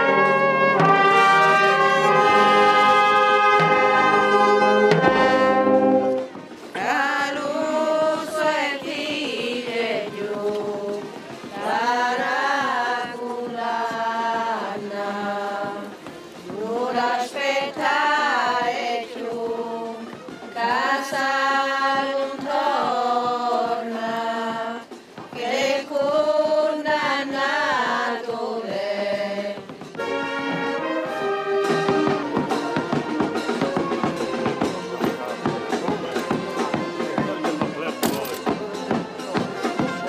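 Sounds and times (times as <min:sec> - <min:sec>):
dense busy music: 0:00.0 - 0:08.0, 0:29.9 - 0:40.0
voices singing slow chant: 0:00.0 - 0:30.2, 0:30.8 - 0:40.0.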